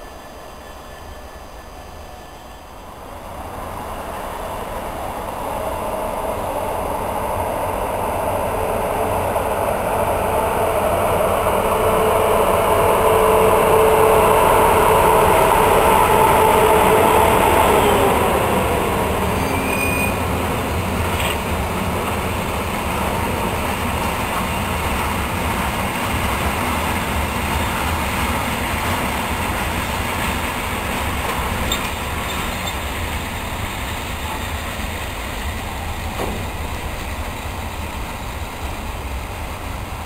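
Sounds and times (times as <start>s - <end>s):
electric locomotive whine: 0.0s - 40.0s
train wheels rumbling: 0.0s - 40.0s.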